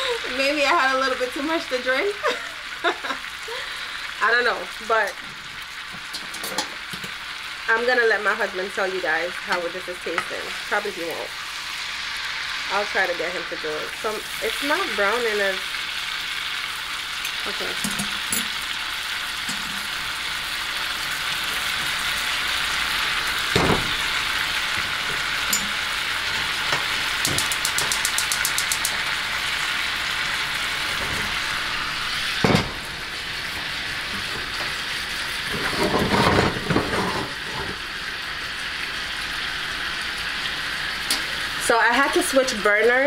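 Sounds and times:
steak sizzling in a pan: 0:00.0 - 0:43.0
pan knocking on stovetop: 0:26.7 - 0:29.0.

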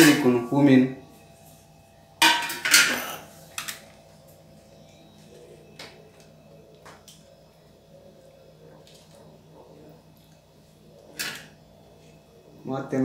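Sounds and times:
plates clattering: 0:02.2 - 0:03.8.

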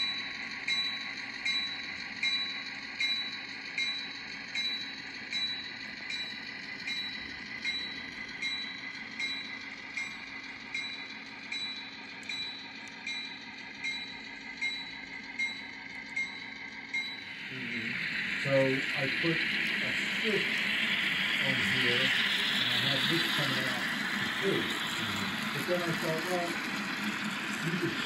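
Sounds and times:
small bell dinging: 0:00.0 - 0:17.3
model train rolling on track: 0:00.0 - 0:28.0.

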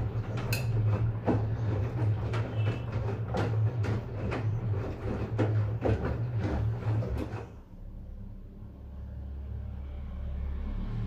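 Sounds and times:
laundry knocking in washing machine drum: 0:00.0 - 0:07.4
low motor hum: 0:00.0 - 0:11.0.

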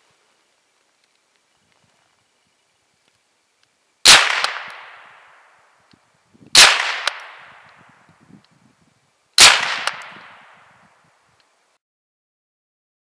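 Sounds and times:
rifle shots: 0:04.0 - 0:05.4, 0:06.6 - 0:07.7, 0:09.4 - 0:10.6.

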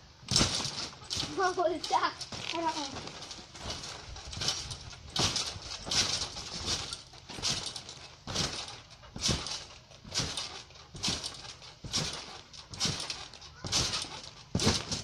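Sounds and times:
trampoline thumping: 0:00.0 - 0:15.0.

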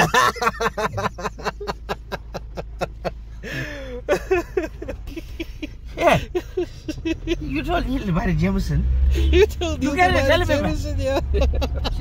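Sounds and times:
men laughing: 0:00.0 - 0:07.7, 0:10.5 - 0:12.0
car engine and road rumble: 0:00.0 - 0:12.0.

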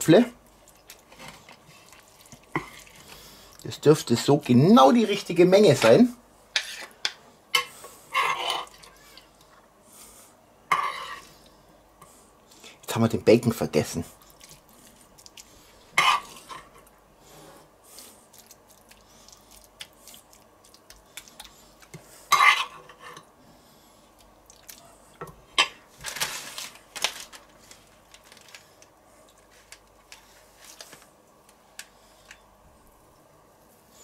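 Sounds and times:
metal spoon scraping a frying pan: 0:06.6 - 0:07.0, 0:10.7 - 0:11.2, 0:16.0 - 0:16.7, 0:22.3 - 0:23.3.

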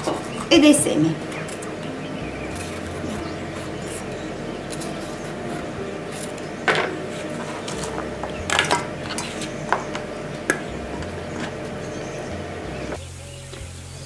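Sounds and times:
low background noise: 0:00.0 - 0:14.0.

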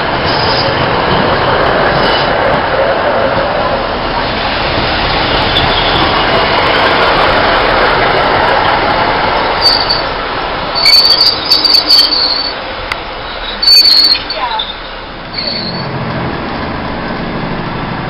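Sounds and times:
train engine and wheels rumbling: 0:00.0 - 0:18.0
wheel flanges squealing: 0:09.5 - 0:16.0.

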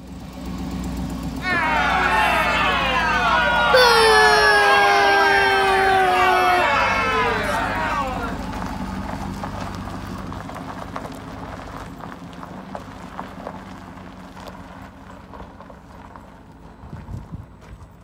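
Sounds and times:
car engine running: 0:00.0 - 0:03.8, 0:05.7 - 0:16.9
gravel crackling under tyres: 0:04.8 - 0:18.0.

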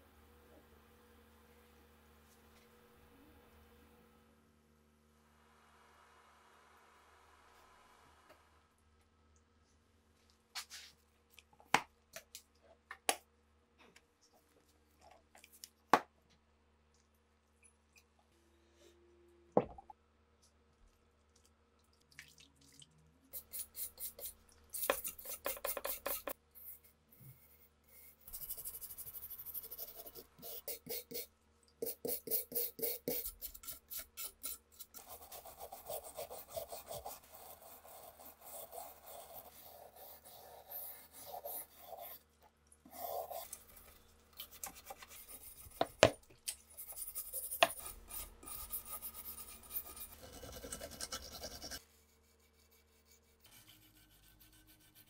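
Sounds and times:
brush scrubbing metal: 0:23.4 - 0:26.9.

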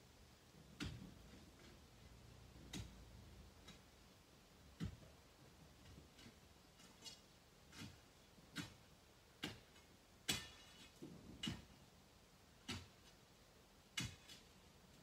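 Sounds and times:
tools striking rock: 0:05.8 - 0:11.8, 0:12.6 - 0:13.0, 0:14.0 - 0:14.6.

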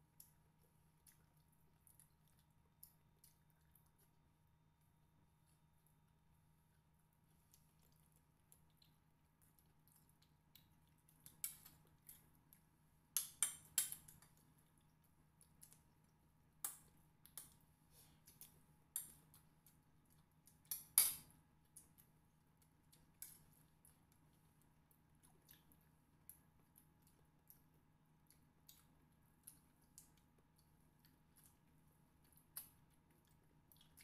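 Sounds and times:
eating clicks and smacks: 0:00.1 - 0:05.9, 0:07.3 - 0:34.0.

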